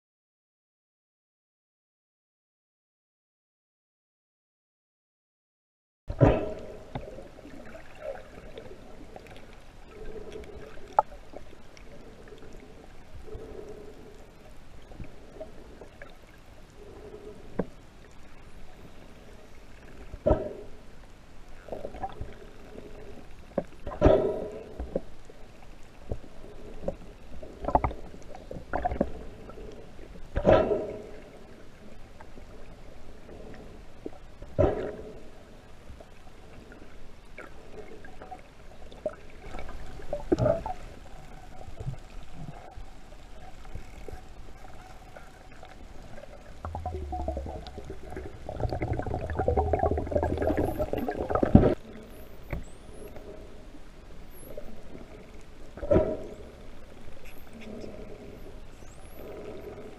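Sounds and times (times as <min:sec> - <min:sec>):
low rumble and splashing: 0:06.1 - 0:59.9
muffled underwater water movement: 0:06.1 - 0:59.9
dull underwater whoosh: 0:46.3 - 0:51.8.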